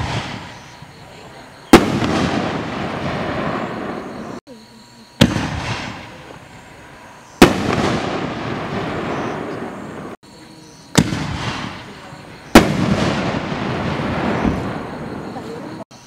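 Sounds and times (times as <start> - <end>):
firework bangs with rumbling tail: 0.0 - 1.0, 1.7 - 4.4, 5.2 - 6.5, 7.4 - 10.2, 10.9 - 15.4.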